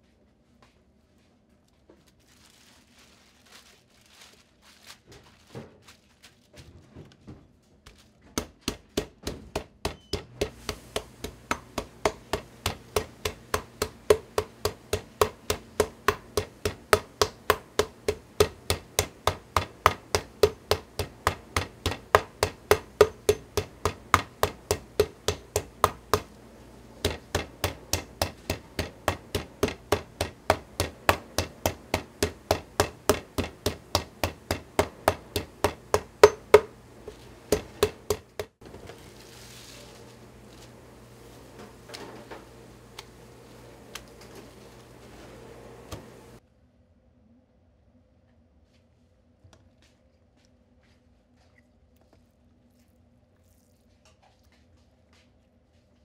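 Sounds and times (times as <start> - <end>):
mallet pounding meat on board: 8.4 - 26.4, 27.0 - 36.8, 37.5 - 38.6.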